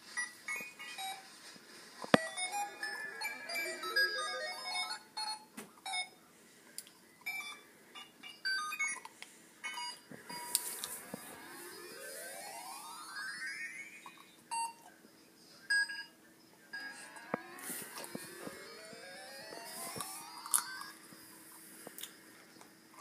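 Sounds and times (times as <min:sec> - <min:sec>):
electronic melodic beeping: 0:02.2 - 0:05.2, 0:10.3 - 0:14.8, 0:16.7 - 0:21.3.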